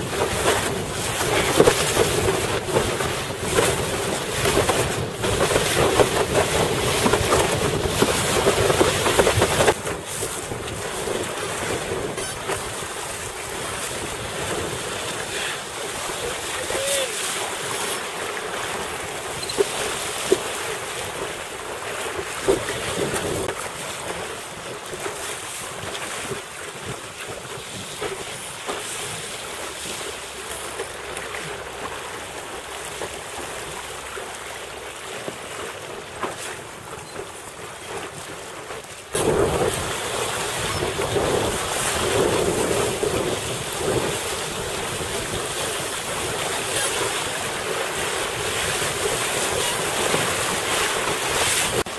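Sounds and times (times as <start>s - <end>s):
water rushing and slapping: 0.0s - 51.9s
wind buffeting microphone: 39.1s - 51.9s.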